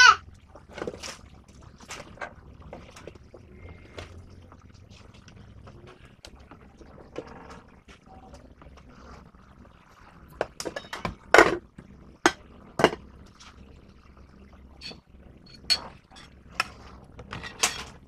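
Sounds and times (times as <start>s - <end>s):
dishes and utensils clinking: 10.4s - 11.6s, 14.8s - 18.0s.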